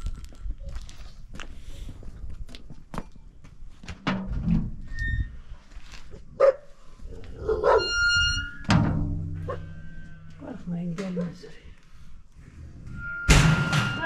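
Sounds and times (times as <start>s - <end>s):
high hinge squeal: 4.9s - 5.5s, 7.6s - 8.7s, 12.9s - 14.0s.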